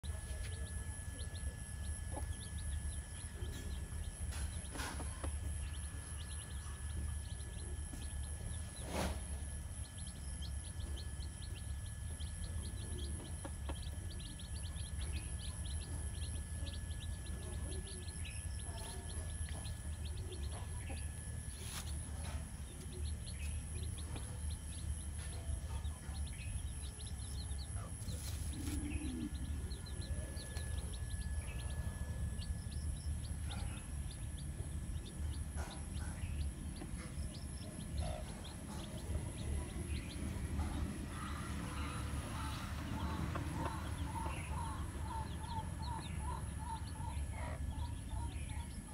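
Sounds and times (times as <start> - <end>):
chicks peeping: 0.0 - 48.9
low background rumble: 0.0 - 48.9.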